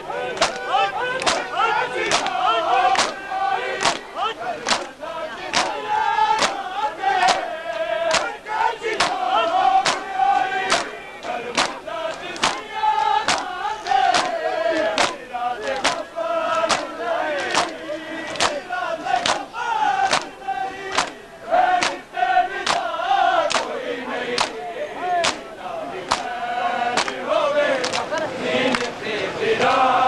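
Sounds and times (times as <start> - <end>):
men's voices chanting: 0.0 - 30.0
hand-on-chest slaps: 0.4 - 1.5, 2.1 - 3.2, 3.8 - 4.9, 5.5 - 5.8, 6.4 - 6.6, 7.2 - 7.4, 8.1 - 8.4, 9.0 - 9.2, 9.8 - 10.1, 10.7 - 12.7, 13.3 - 18.6, 19.2 - 21.2, 21.8 - 22.0, 22.6 - 22.9, 23.5 - 23.7, 24.4 - 24.6, 25.2 - 25.5, 26.1 - 26.3, 27.0 - 27.2, 27.8 - 28.2.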